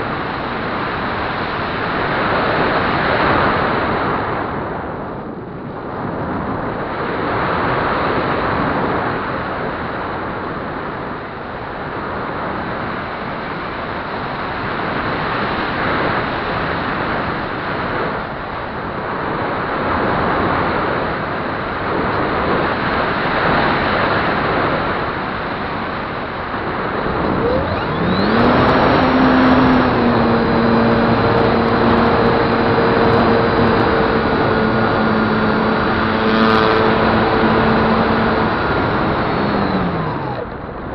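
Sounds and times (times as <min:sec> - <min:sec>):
electric motor whine: 0:26.4 - 0:40.9.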